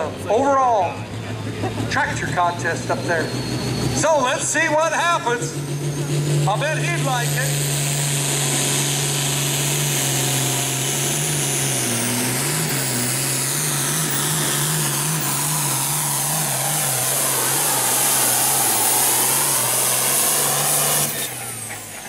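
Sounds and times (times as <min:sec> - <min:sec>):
tractor diesel engine at full throttle: 0:00.0 - 0:22.0
high whine: 0:09.9 - 0:22.0.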